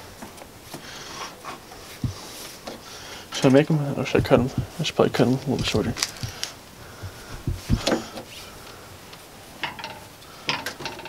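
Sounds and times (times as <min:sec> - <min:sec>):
knocks and rubbing on hoses: 0:01.9 - 0:02.8, 0:03.4 - 0:08.4.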